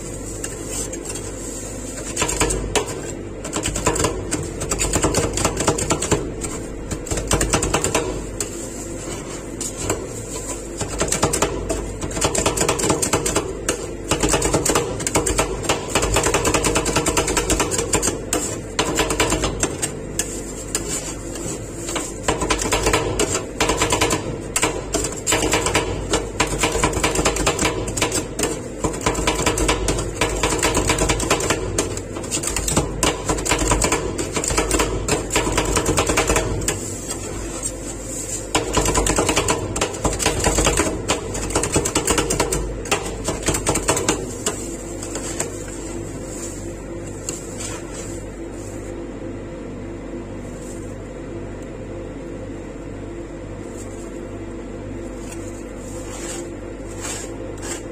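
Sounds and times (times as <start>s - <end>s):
machine hum: 0.0s - 57.9s.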